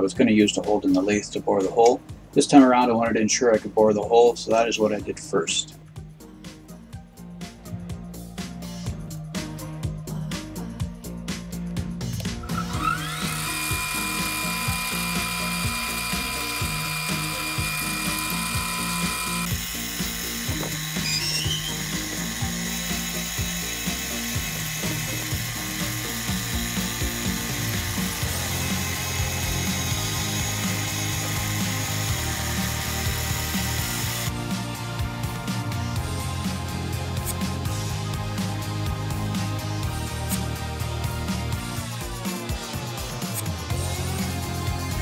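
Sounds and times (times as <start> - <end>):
background music with bass line: 0.0 - 45.0
metal lathe running: 12.6 - 34.3.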